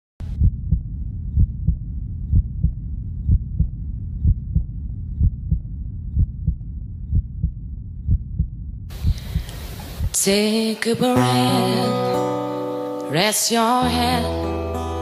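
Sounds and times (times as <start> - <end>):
low heartbeat thumps: 0.2 - 10.2
steady low hum: 0.2 - 10.2.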